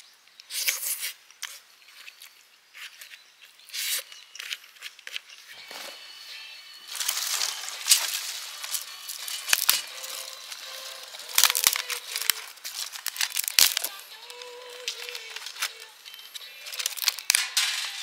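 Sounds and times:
crackling rustling handling noise: 6.8s - 18.0s.

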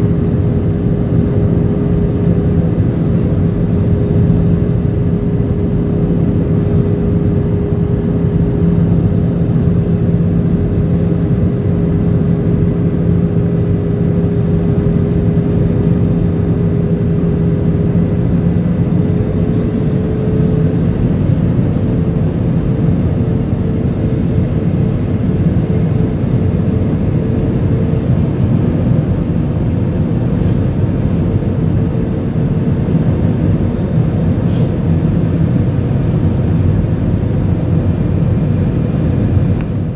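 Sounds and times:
jet engines droning: 0.0s - 39.9s
steady hum: 0.0s - 39.9s
rushing air: 34.4s - 35.1s.

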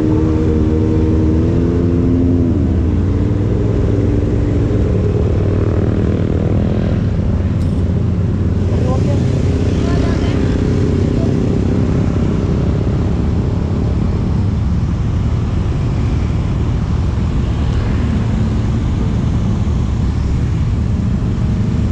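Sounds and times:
motorcycles passing: 0.0s - 21.9s
road traffic rumble: 0.0s - 21.9s.

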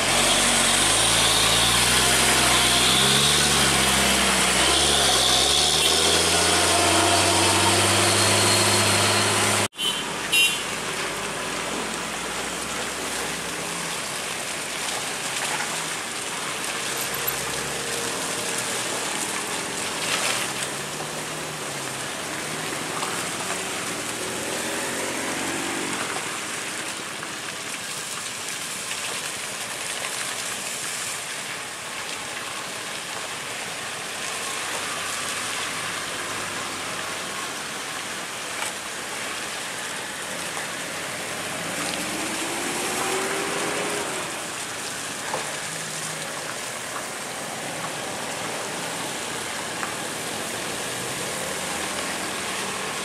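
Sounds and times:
truck diesel engine pulling: 0.0s - 9.7s
faint car engines: 0.0s - 10.5s.

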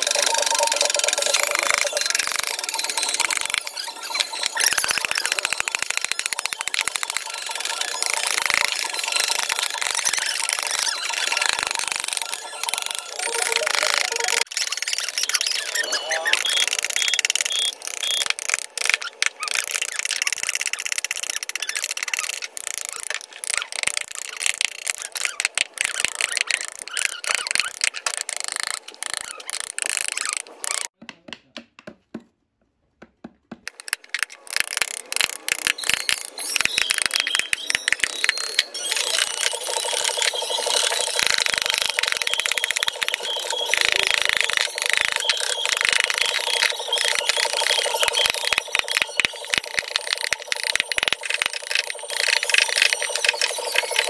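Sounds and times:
mallet tapping a carving gouge: 31.0s - 32.3s.

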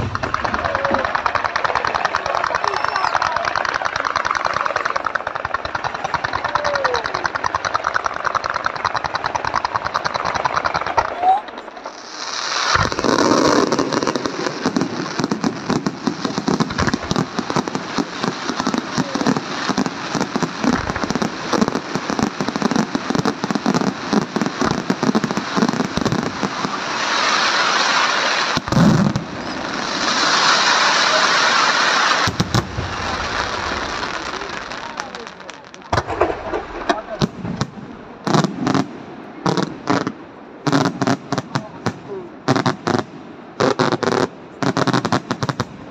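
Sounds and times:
firework shell bursts: 0.0s - 38.9s
hissing crackle: 0.0s - 45.9s
sharp cracks: 0.0s - 45.9s
loud bang: 35.9s - 38.7s.

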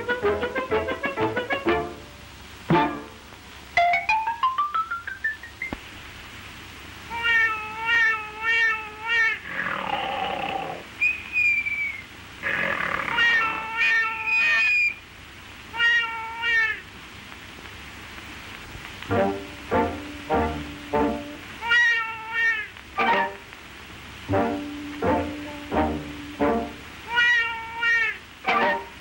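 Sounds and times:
cartoon baby crying: 7.1s - 9.5s, 13.0s - 15.0s, 15.8s - 16.8s, 21.6s - 23.4s, 27.1s - 29.0s
short falling whistle: 11.0s - 12.1s.

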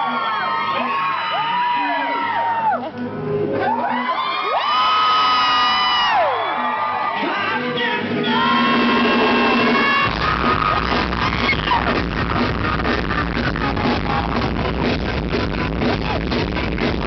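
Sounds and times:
live rock band playing: 6.8s - 17.0s
rapid drumming: 8.3s - 17.0s.

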